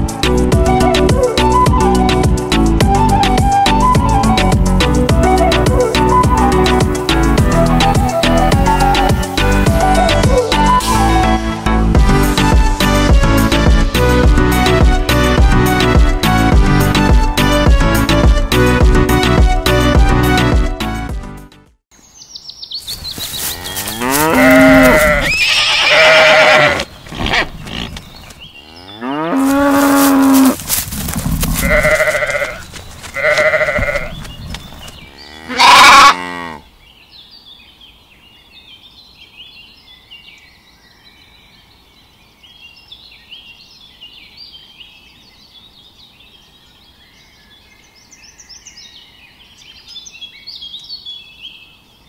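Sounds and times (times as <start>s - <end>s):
faint birdsong: 21.9s - 30.8s, 31.6s - 52.0s
cattle mooing: 23.4s - 27.9s, 28.6s - 30.6s, 31.6s - 32.6s, 35.2s - 36.6s.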